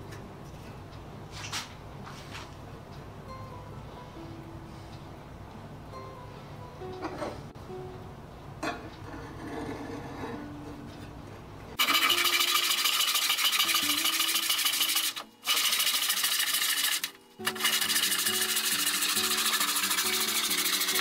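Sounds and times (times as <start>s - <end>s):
fast saw rasp: 11.8s - 21.0s.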